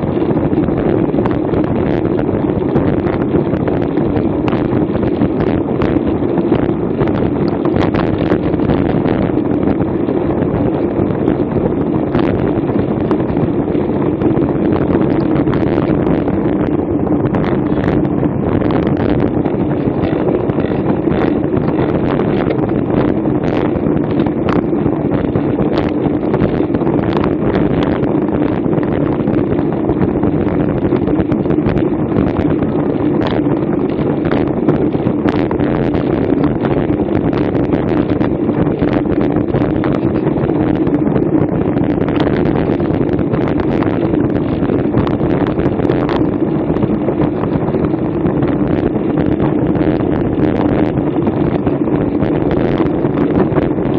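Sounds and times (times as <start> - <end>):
wind rushing over microphone: 0.0 - 53.9.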